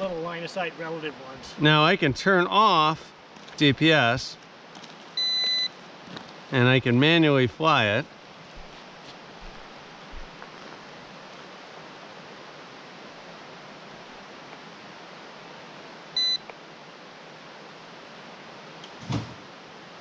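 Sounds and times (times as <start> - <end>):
steady hiss: 0.0 - 20.0
high electronic beep: 16.2 - 16.4.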